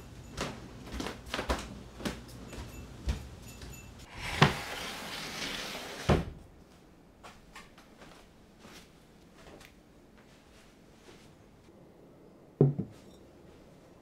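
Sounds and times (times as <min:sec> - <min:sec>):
wooden sliding door rumbling: 0:04.1 - 0:06.4.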